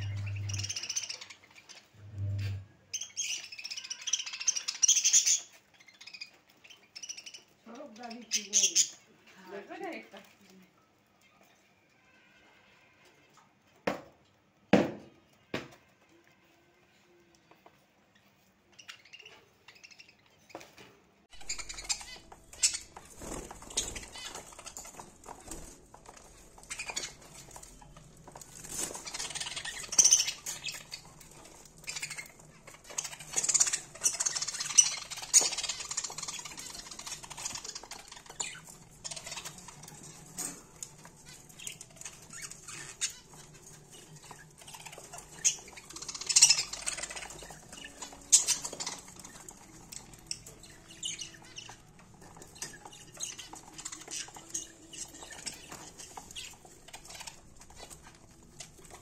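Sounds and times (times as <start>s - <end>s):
budgerigars chirping: 0.0s - 9.1s, 21.3s - 59.0s.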